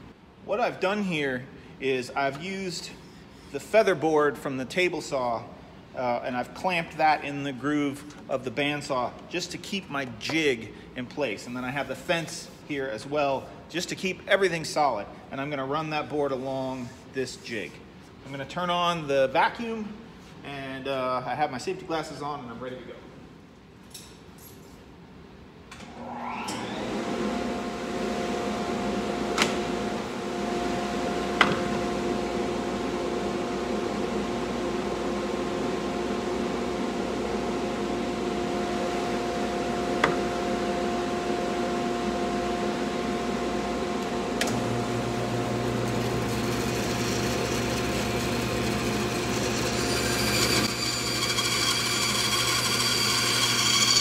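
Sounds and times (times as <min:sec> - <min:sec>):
dust vacuum whining: 0:25.9 - 0:54.0
bandsaw motor humming: 0:38.4 - 0:54.0
saw blade cutting wood: 0:45.9 - 0:54.0.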